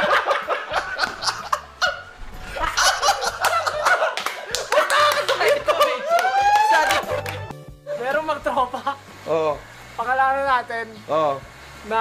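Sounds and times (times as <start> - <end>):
group laughing: 0.0 - 7.5
hand claps: 3.4 - 7.6.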